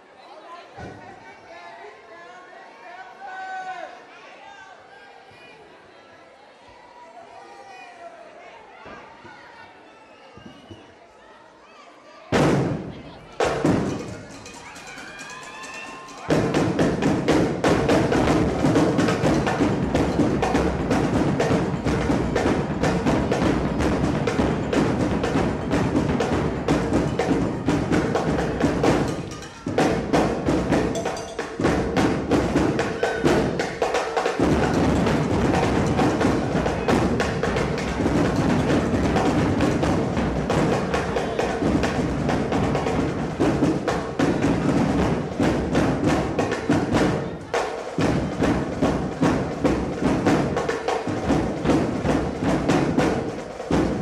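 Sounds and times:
percussion-heavy music with drums: 12.3s - 54.0s.

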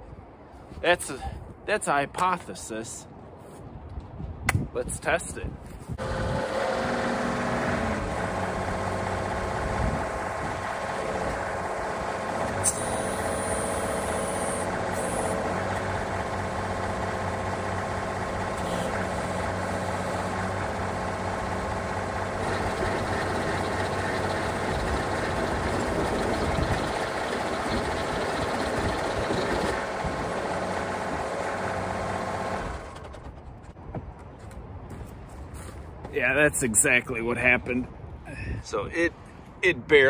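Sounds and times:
tractor engine with rototiller: 6.0s - 33.6s.

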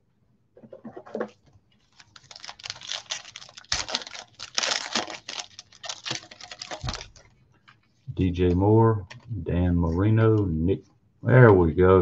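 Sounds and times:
foil wrapper crinkling and tearing: 1.8s - 7.3s.

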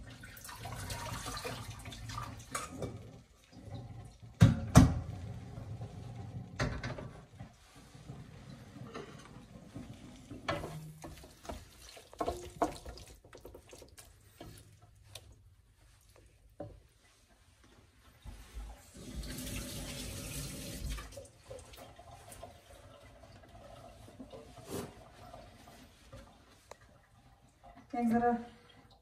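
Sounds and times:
wooden spoon scraping metal pot: 8.0s - 14.7s.

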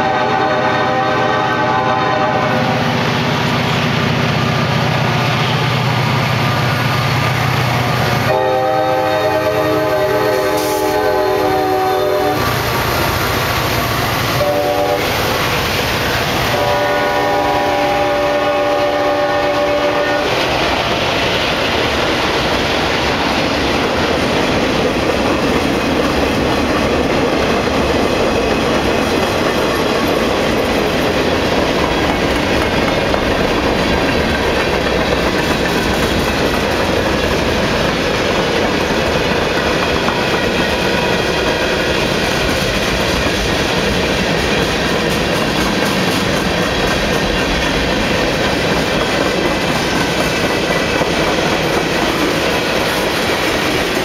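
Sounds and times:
train horn blasts: 0.0s - 3.0s, 8.1s - 12.7s, 14.3s - 15.3s, 16.4s - 20.4s
diesel locomotives at full throttle: 0.0s - 54.0s
train wheels clacking on rails: 0.0s - 54.0s.

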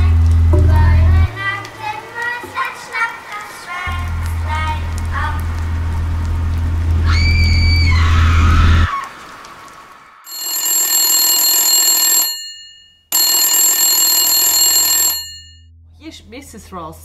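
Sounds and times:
low drone with falling tone: 4.0s - 9.0s
telephone bells ringing: 10.3s - 15.6s.

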